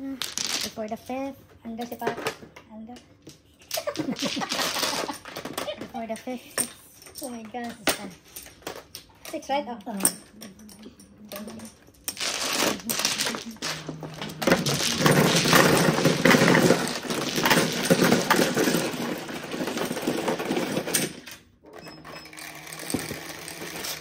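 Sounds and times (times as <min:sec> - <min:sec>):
mahjong tiles clattering: 0:00.0 - 0:00.9, 0:03.3 - 0:06.0, 0:09.9 - 0:21.3
low mechanical hum: 0:00.0 - 0:24.0.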